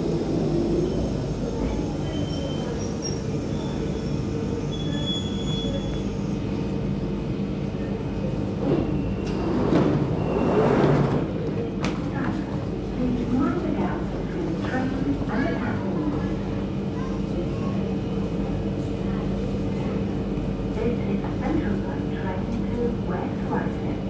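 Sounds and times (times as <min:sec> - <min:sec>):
train wheel squeals: 0:00.9 - 0:06.4, 0:08.7 - 0:11.0
train doors opening: 0:08.6 - 0:12.0.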